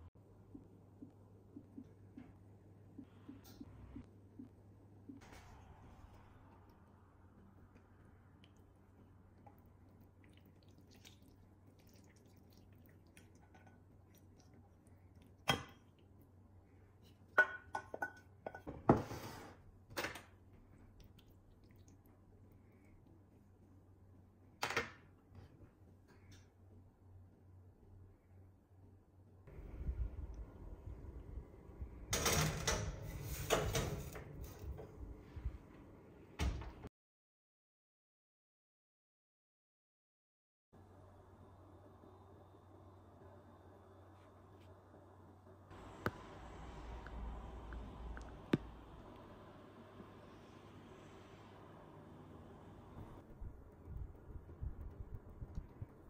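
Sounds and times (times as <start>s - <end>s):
kitchenware clinking: 17.4s - 19.1s
kitchenware scraping: 17.4s - 19.6s, 32.1s - 34.8s.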